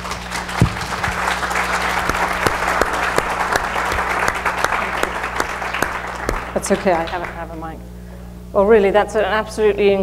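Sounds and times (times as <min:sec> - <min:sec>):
audience applauding: 0:00.0 - 0:07.4
faint low hum: 0:00.0 - 0:10.0
thump: 0:00.6 - 0:00.9.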